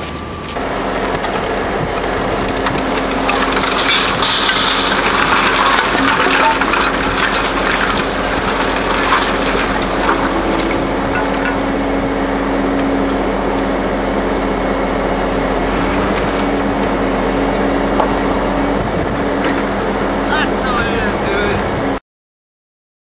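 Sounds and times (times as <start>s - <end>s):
truck engine humming: 0.0s - 22.0s
lumber and scrap metal clattering: 0.6s - 14.0s
loud even noise: 0.6s - 21.9s.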